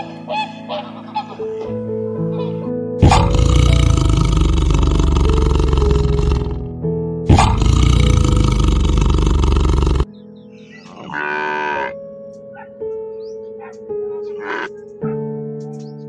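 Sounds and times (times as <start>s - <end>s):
piano music: 0.0s - 16.0s
tiger roaring: 3.0s - 6.7s, 7.3s - 10.1s.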